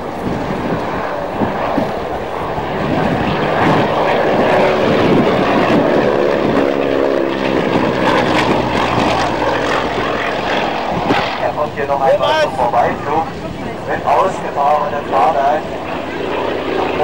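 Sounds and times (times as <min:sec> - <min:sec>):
propeller plane engine drone: 0:00.0 - 0:17.0.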